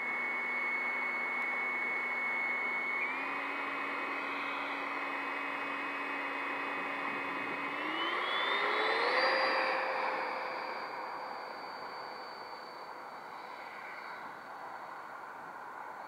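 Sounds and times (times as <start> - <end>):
electric ducted fan whine: 0.0 - 16.0.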